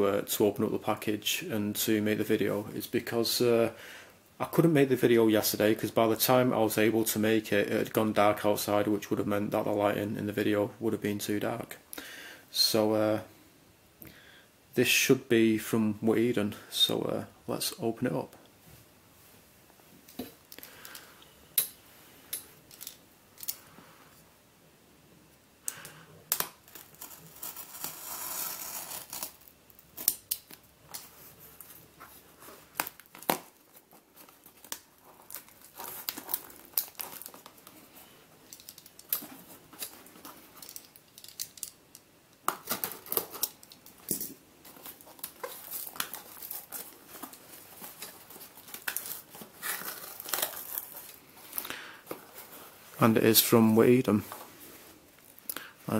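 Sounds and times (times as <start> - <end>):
packing tape peeling: 26.3 - 31.0, 32.7 - 37.8, 42.5 - 44.0, 44.7 - 51.7
cardboard tearing: 26.7 - 29.5, 44.8 - 51.2.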